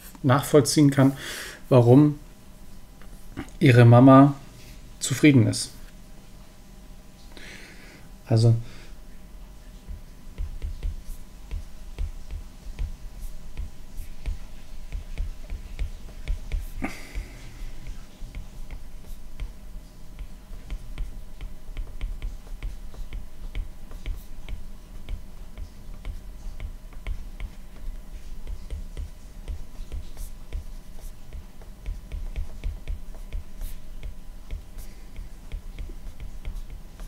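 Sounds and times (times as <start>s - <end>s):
low steady hum: 0.0s - 37.0s
stylus tapping on glass screen: 9.9s - 16.6s.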